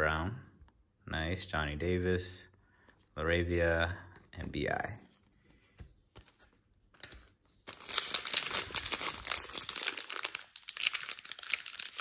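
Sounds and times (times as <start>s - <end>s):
foil wrapper crinkling and tearing: 7.6s - 12.0s.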